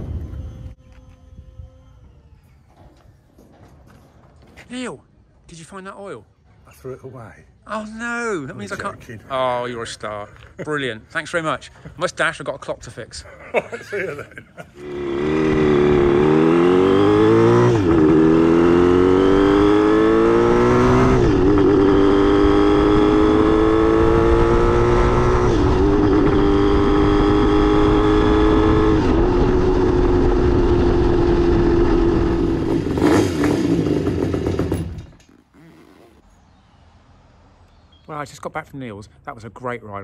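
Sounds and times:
motorcycle engine shifting gears: 14.8s - 36.3s.

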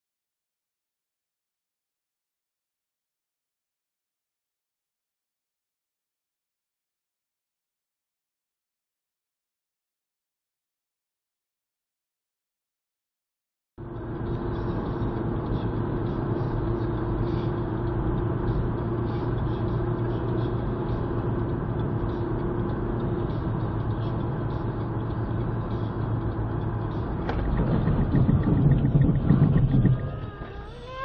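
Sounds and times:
car road and engine noise: 13.8s - 31.0s
low rumbling: 26.1s - 31.0s.

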